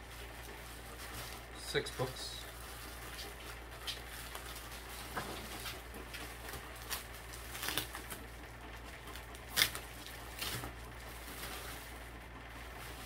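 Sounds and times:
plastic wrapping crinkling: 0.0 - 13.0.

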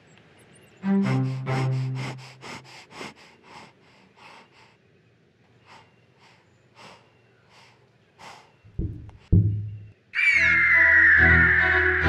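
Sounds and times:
breathy puffs: 0.8 - 4.8, 5.5 - 9.8
low thumps: 8.7 - 10.0.

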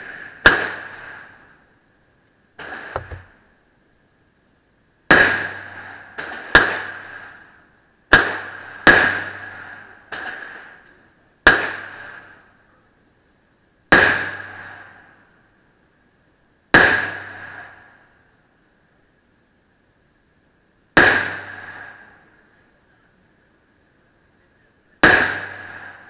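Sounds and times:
quieter gunshots: 8.1 - 10.7, 11.4 - 12.3, 21.0 - 22.0, 25.0 - 26.0.

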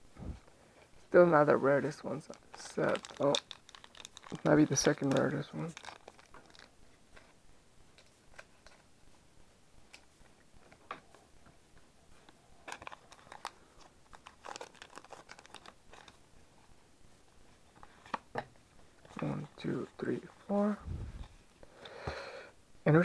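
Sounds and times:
cards being handled: 1.8 - 8.9, 11.8 - 16.2
foil wrapper crinkling and tearing: 1.9 - 6.7, 12.6 - 16.2.

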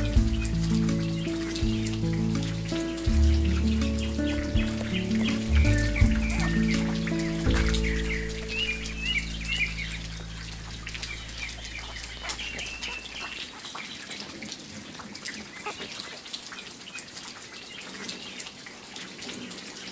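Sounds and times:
held music chord: 0.0 - 13.2.

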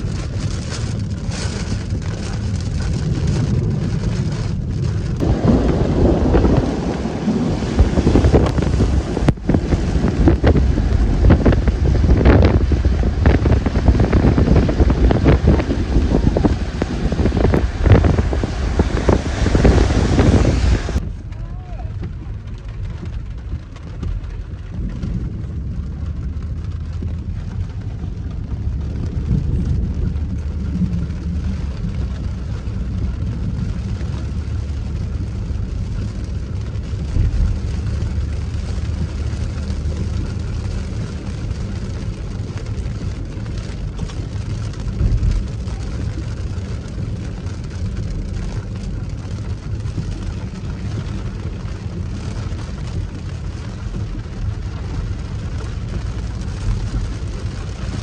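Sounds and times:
car engine and tyre rumble: 0.0 - 58.0
water spray hiss from tyres: 13.6 - 21.0.

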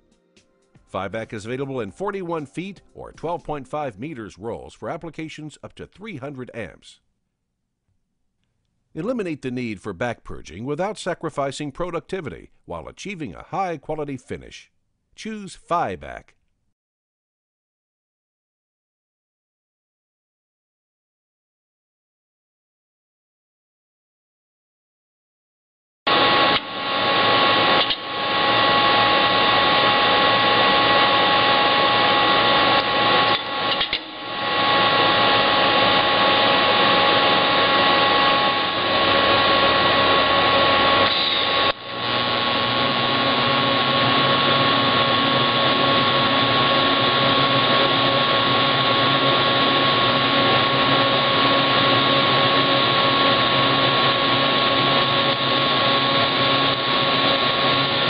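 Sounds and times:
steady tones: 26.1 - 51.8
workshop machinery whirring: 26.1 - 58.0.

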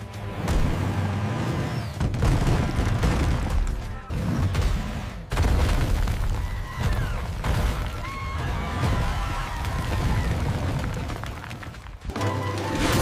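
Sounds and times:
background music: 0.0 - 5.0, 12.0 - 13.0.

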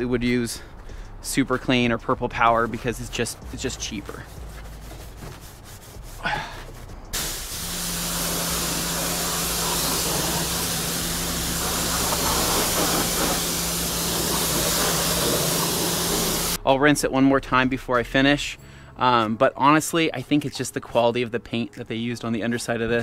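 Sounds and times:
pressure washer spraying: 7.2 - 16.6.

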